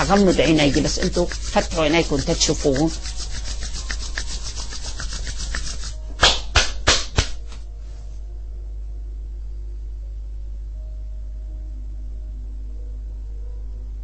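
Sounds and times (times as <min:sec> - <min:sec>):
hands brushing thumps over ears: 0:00.0 - 0:08.2
palms rubbing together: 0:00.0 - 0:08.2.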